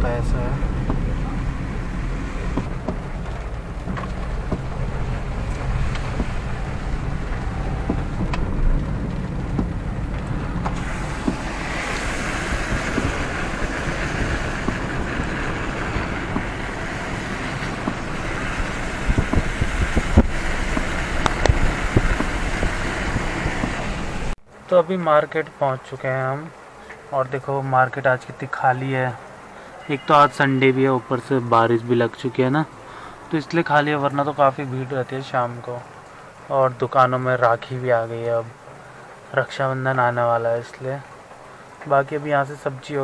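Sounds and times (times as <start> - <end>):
tyres hissing on wet road: 0.0 - 24.4, 28.4 - 43.0
wind noise: 0.0 - 24.4
car engine and road rumble: 0.0 - 24.7.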